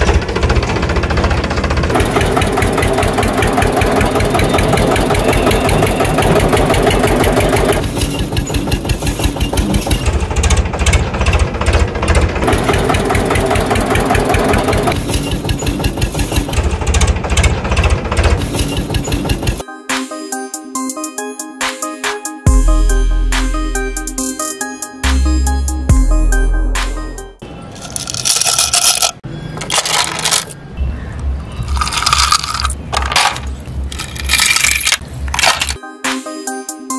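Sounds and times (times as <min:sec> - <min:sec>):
diesel tractor engine knocking: 0:00.0 - 0:19.6.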